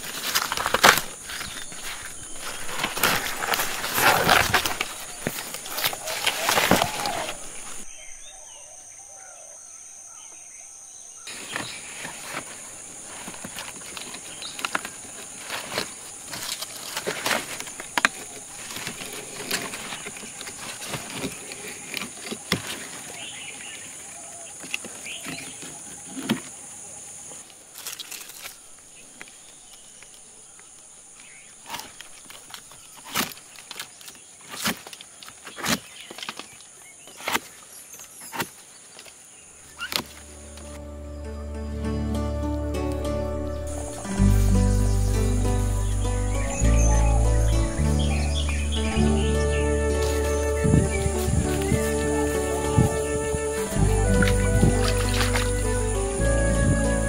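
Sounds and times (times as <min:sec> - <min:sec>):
high-pitched insect buzzing: 0:43.6 - 0:57.0.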